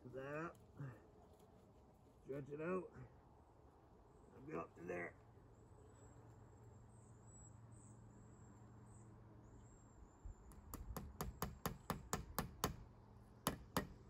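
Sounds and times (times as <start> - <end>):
hammer tapping a nail into wood: 10.6 - 12.8, 13.4 - 14.0.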